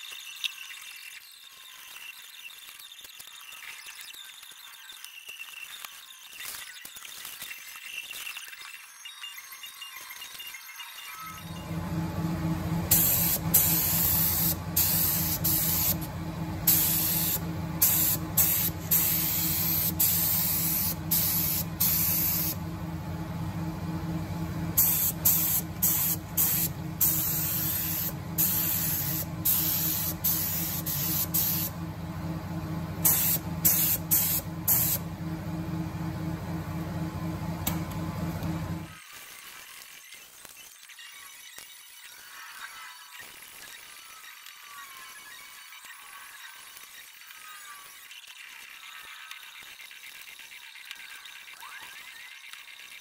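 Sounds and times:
spray gun hissing bursts: 12.8 - 22.6, 24.7 - 31.7, 33.0 - 35.0.

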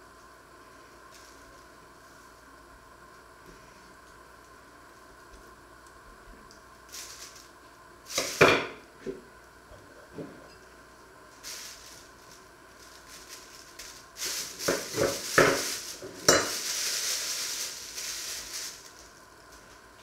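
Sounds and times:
plastic film crinkling: 6.8 - 8.5, 11.3 - 20.0.

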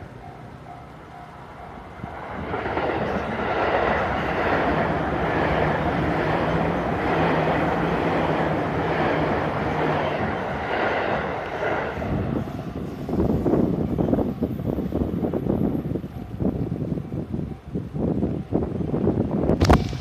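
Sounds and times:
crossing warning bell ringing: 0.0 - 2.0
train wheels rushing on rails: 0.0 - 20.0.

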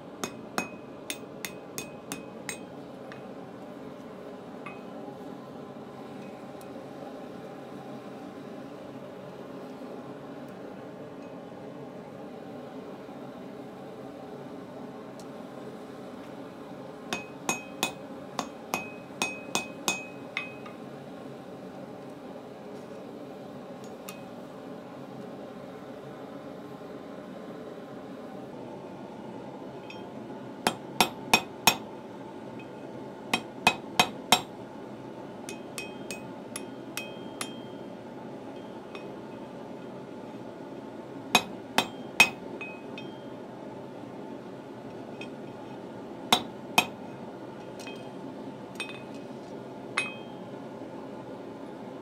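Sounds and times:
hammer striking steel on anvil: 0.2 - 3.3, 17.1 - 20.8, 30.7 - 31.9, 32.6 - 34.5, 35.5 - 37.9, 41.4 - 43.3, 46.3 - 47.0, 48.8 - 49.1, 50.0 - 50.4.

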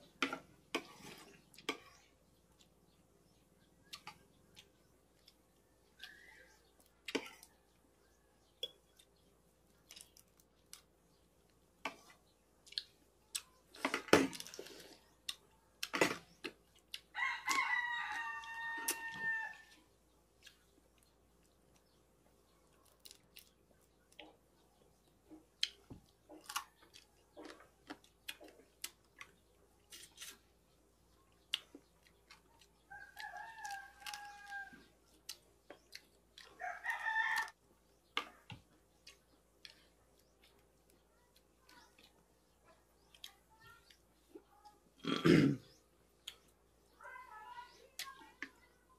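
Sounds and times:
clicks and knocks of eating: 3.8 - 7.8, 8.4 - 19.2, 22.7 - 30.5, 31.2 - 46.6
rooster crowing: 17.2 - 19.8, 33.0 - 34.8, 36.6 - 37.6.

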